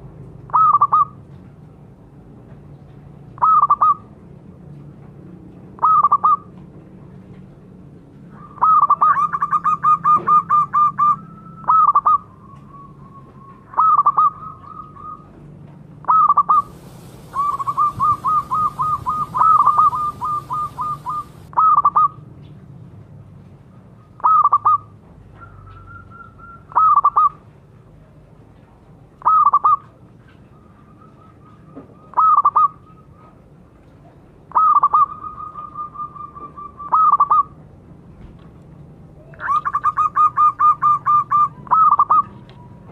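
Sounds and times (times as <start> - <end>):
dove cooing: 16.1 - 22.1.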